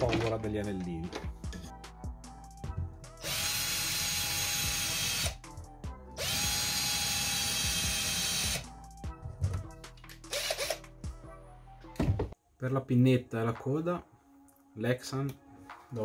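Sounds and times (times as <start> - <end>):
cordless drill whining: 3.2 - 5.4, 6.2 - 8.6, 10.3 - 10.8.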